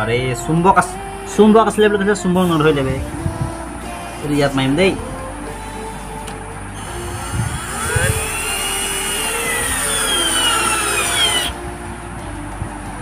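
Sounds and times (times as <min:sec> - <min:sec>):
cordless drill whining: 0:06.8 - 0:11.6.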